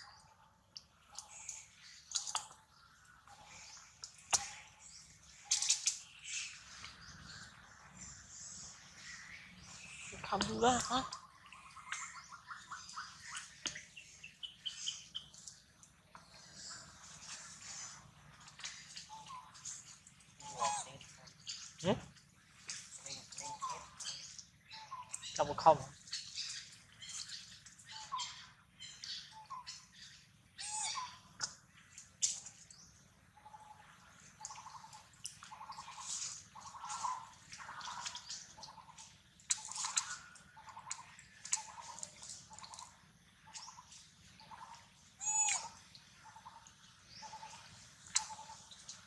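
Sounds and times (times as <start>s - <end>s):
bird calling in short notes: 45.2s - 45.8s.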